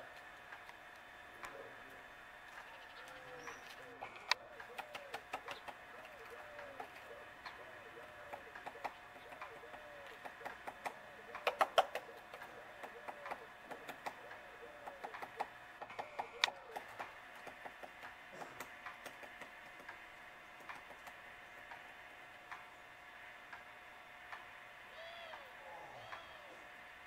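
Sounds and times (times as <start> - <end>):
woodpecker tapping on bark: 2.7 - 21.9.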